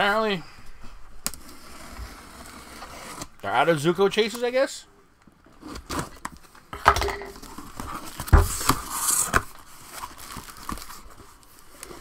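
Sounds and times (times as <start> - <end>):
packing crinkling and rustling: 7.3 - 12.0.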